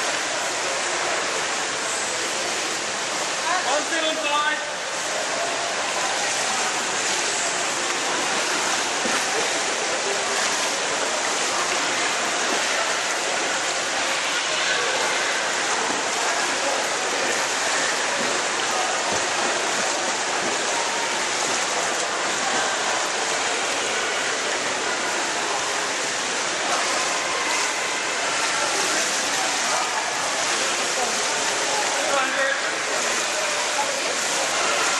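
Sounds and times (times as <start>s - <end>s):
water splashing in a pool: 0.0s - 34.9s.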